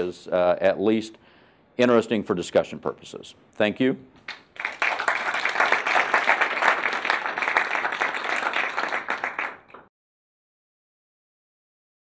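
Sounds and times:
audience applauding: 0:04.3 - 0:09.9.

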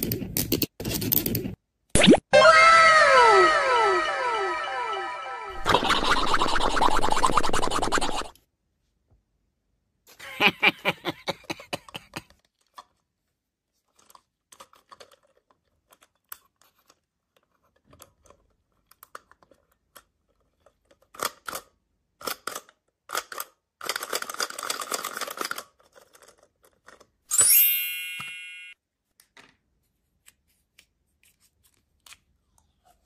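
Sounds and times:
plastic rubbing: 0:05.6 - 0:08.3.

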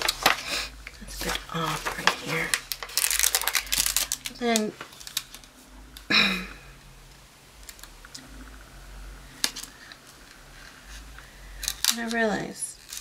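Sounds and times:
stickers peeled and pressed: 0:01.2 - 0:05.4.

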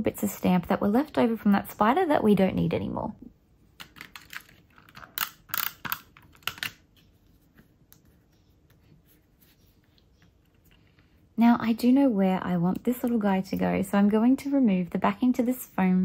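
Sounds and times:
paper cut-outs clicking and tapping: 0:03.8 - 0:07.0.

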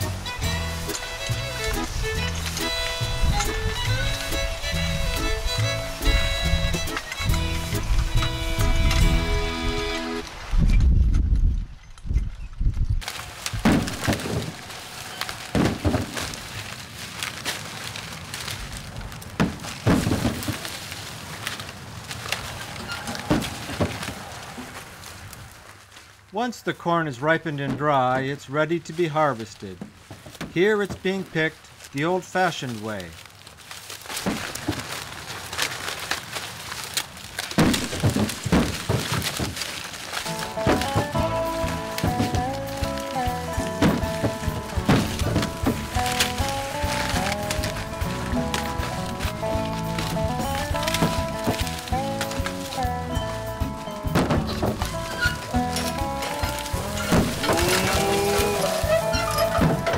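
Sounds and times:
corn ears thudding into wagon: 0:00.0 - 0:10.1, 0:13.0 - 0:26.0, 0:26.9 - 0:59.9
rustle of dry husks: 0:00.0 - 0:10.8, 0:13.0 - 0:26.3, 0:28.5 - 0:59.9.

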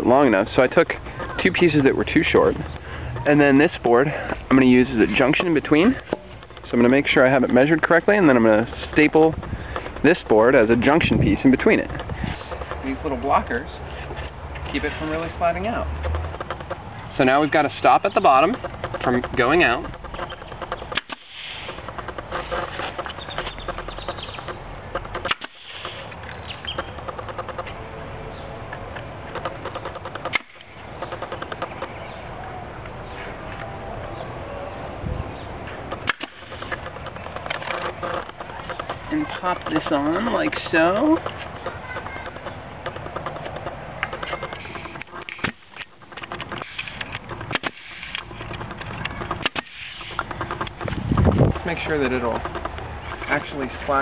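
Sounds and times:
pneumatic stapler shots: 0:20.2 - 0:24.4, 0:25.0 - 0:26.1, 0:36.0 - 0:36.8, 0:44.9 - 0:48.3, 0:49.3 - 0:50.4.

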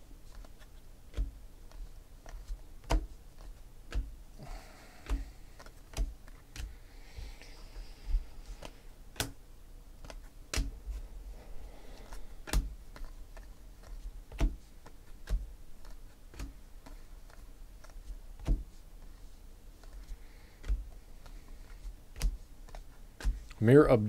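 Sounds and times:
trading cards snapping: 0:08.6 - 0:09.4, 0:10.0 - 0:10.7, 0:12.0 - 0:18.6.

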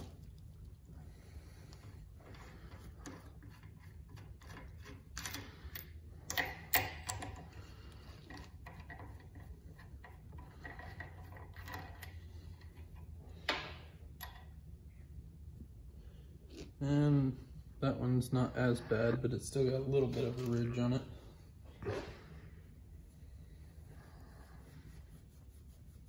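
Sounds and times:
steady low hum: 0:00.0 - 0:26.0
small metal parts clicking: 0:03.1 - 0:07.6.

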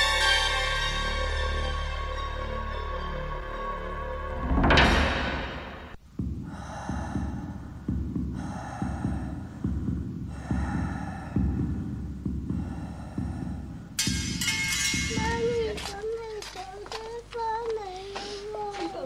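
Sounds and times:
throbbing drone: 0:04.0 - 0:16.0
loud hit: 0:04.4 - 0:06.0
heartbeat-like thumping pulse: 0:04.6 - 0:16.3.

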